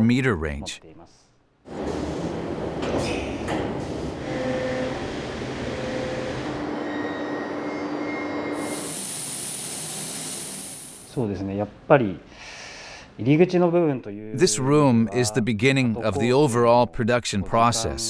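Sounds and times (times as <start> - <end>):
milling machine running: 4.1 - 6.8
loud high hiss: 8.6 - 11.2.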